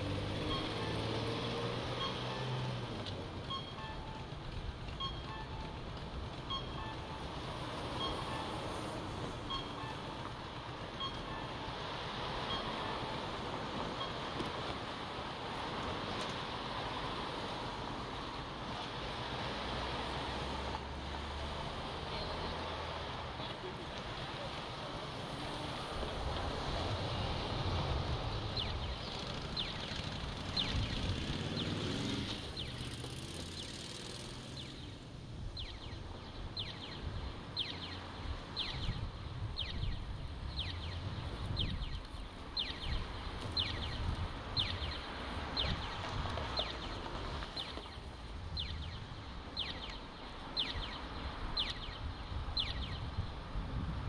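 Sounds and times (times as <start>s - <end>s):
pedestrian crossing signal chirping: 0.0s - 18.6s, 28.5s - 46.0s, 47.6s - 53.1s
street traffic rumble: 0.0s - 54.0s
wind: 0.0s - 54.0s.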